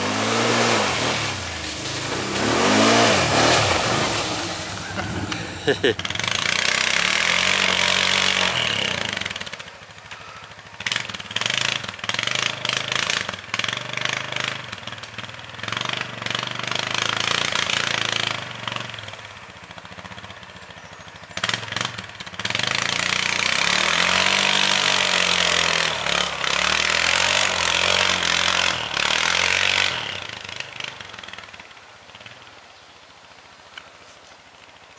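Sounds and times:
atv engines revving: 0.0 - 32.5.

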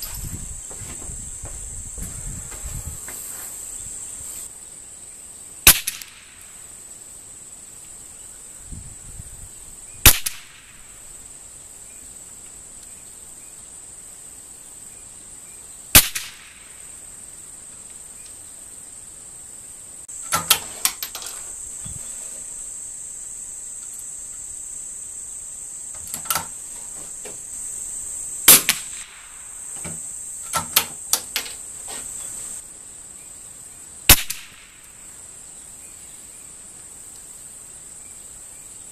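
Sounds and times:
high-pitched insect drone: 0.0 - 4.5, 20.1 - 32.6
rifle shots cracking: 5.7 - 6.3, 10.1 - 10.8, 16.0 - 16.6, 28.5 - 29.4, 34.1 - 34.8.

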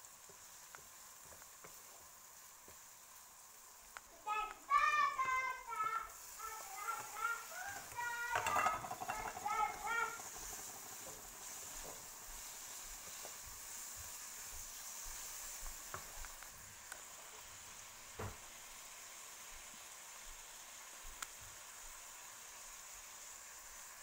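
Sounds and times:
vegetables sizzling in oil: 0.0 - 24.0
wooden spatula knocking pan: 6.9 - 12.2.

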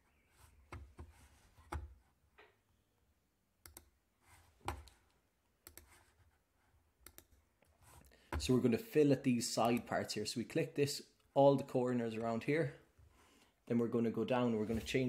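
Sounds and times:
faint computer mouse clicks: 7.0 - 7.3.

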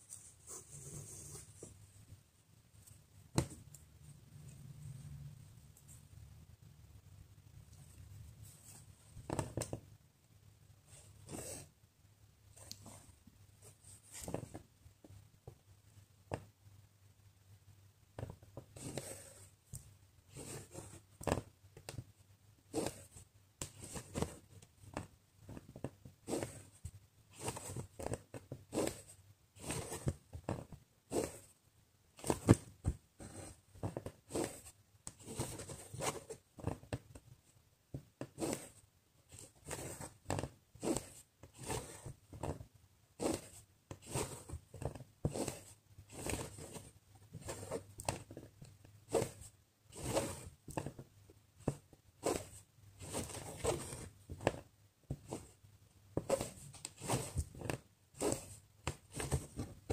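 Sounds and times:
thread pulled through fabric: 56.2 - 59.6.

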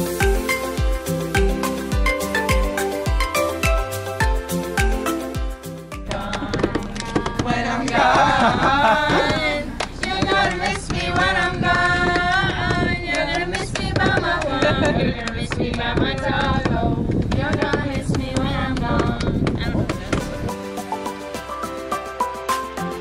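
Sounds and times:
hand-drum percussion: 0.0 - 23.0
ornamented singing voice: 5.9 - 20.9.

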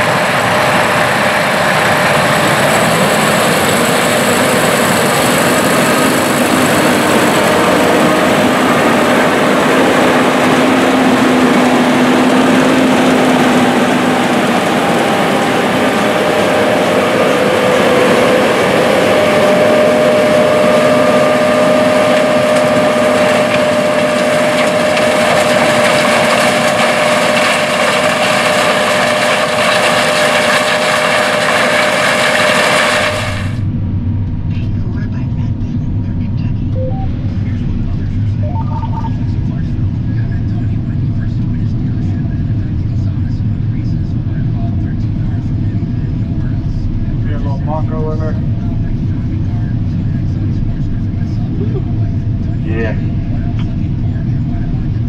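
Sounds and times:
combine harvester running: 0.0 - 55.0
faint held tones: 36.8 - 37.5, 38.4 - 39.2.

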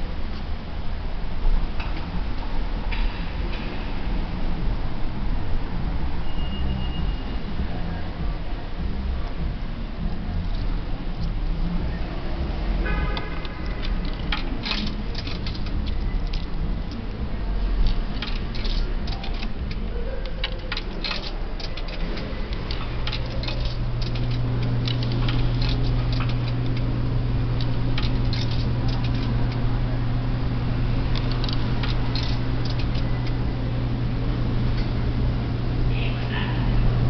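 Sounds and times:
low electrical hum: 0.0 - 37.0
coins clinking into coin slot: 13.8 - 16.6, 17.8 - 26.9, 27.6 - 29.6, 31.1 - 33.4.

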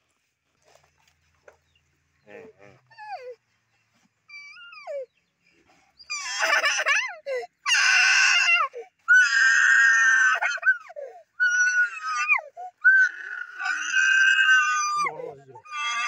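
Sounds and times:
boy screaming and crying: 6.1 - 16.0.

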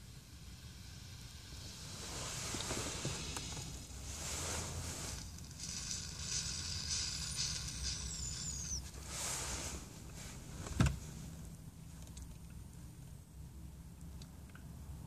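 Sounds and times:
air hissing through pipe: 0.0 - 10.6
low steady hum: 0.0 - 15.0.

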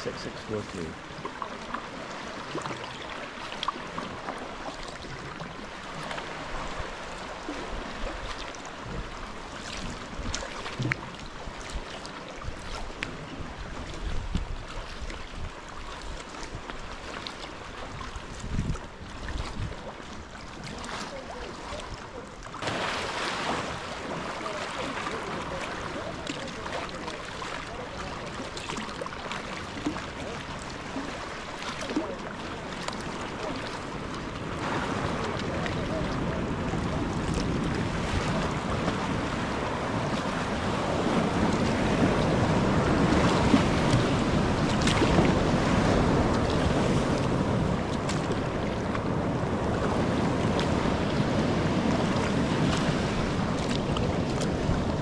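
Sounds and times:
water splashing against kayak hull: 0.0 - 55.0
wind buffeting microphone: 8.8 - 16.9, 17.8 - 22.2, 33.4 - 55.0.

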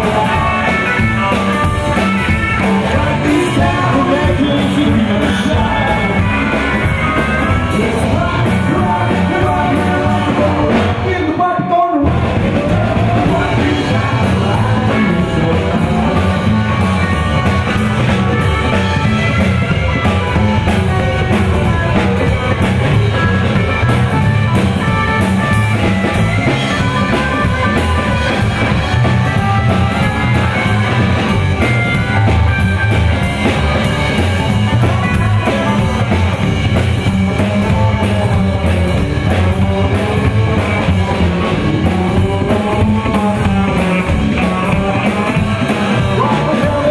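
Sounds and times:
person singing lead vocal: 0.0 - 19.4, 34.1 - 46.9
drum kit: 0.0 - 46.9
electric guitar: 0.0 - 46.9
upright bass: 0.0 - 46.9.

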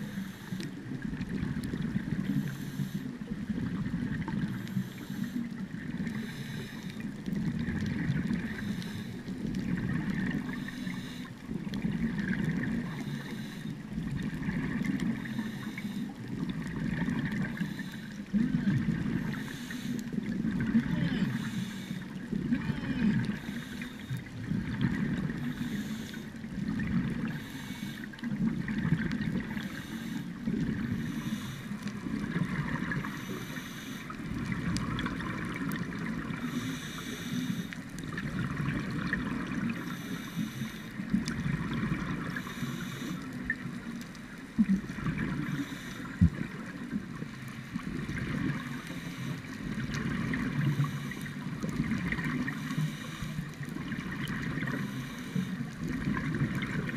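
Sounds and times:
underwater exhaust bubbles gurgling: 0.0 - 56.9.

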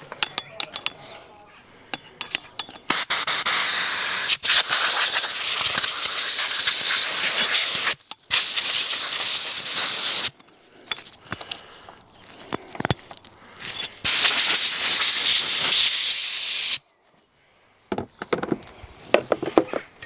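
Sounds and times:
light clicks and knocks of handling: 1.9 - 2.9
compressed air blow gun hissing: 2.9 - 10.4, 14.0 - 16.8.

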